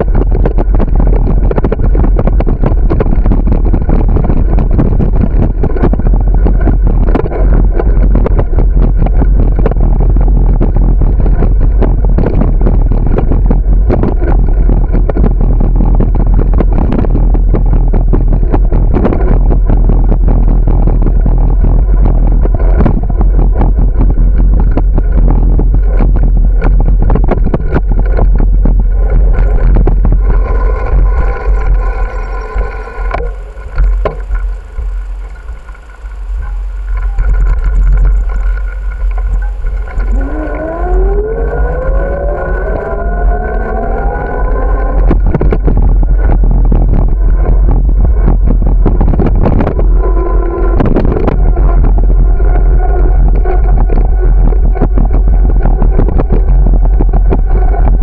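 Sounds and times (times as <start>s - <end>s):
bicycle rattling over pavement: 0.0s - 58.0s
wind rumble on microphone: 0.0s - 58.0s
car engines in traffic: 28.4s - 46.4s.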